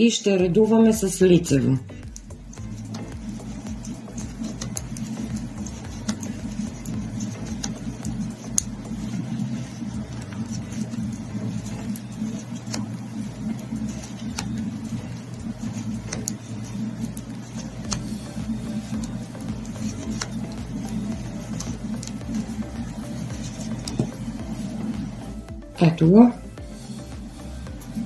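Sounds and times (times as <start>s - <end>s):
steady low hum: 0.0s - 28.0s
knitting needles tapping: 2.0s - 11.0s, 15.5s - 25.7s.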